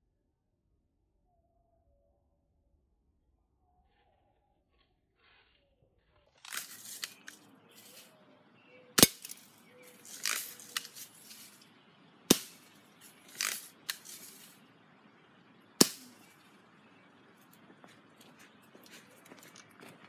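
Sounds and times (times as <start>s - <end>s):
soft noisy bursts: 6.4s - 20.0s
sharp gunshots: 9.0s - 9.5s, 12.3s - 14.6s, 15.8s - 16.3s.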